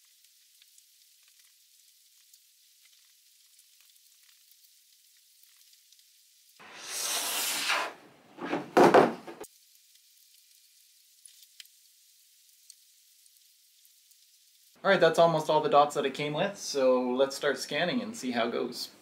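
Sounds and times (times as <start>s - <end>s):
surfboard scraping on table: 6.6s - 9.5s
heavy knocks on table: 8.4s - 9.4s.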